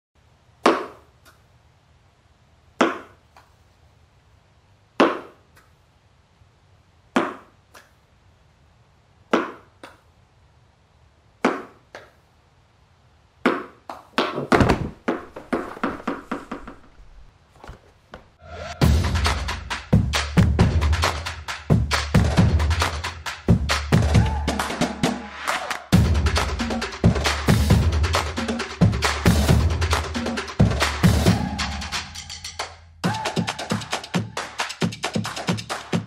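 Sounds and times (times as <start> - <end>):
tennis ball hitting wall: 0.6 - 1.1, 2.8 - 3.2, 5.0 - 5.4, 7.1 - 7.6, 9.3 - 10.0, 11.4 - 12.1, 13.4 - 16.8
bumps: 14.2 - 19.4.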